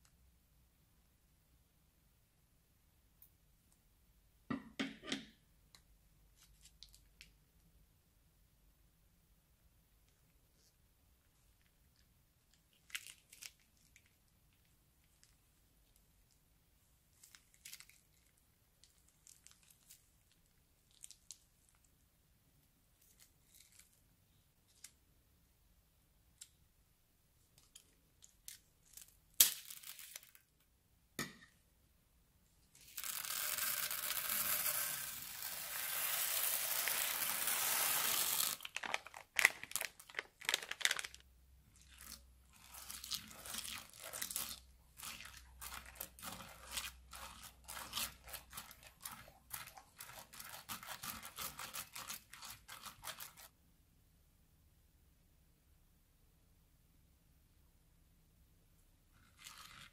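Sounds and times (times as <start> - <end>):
beads streaming out hiss: 32.8 - 38.7
beads crackling and ticking: 32.8 - 53.5
plastic bag rustling: 35.4 - 41.2.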